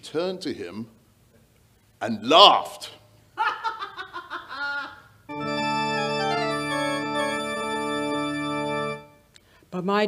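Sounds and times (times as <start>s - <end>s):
person laughing: 3.4s - 5.1s
sustained organ chord: 5.3s - 9.3s.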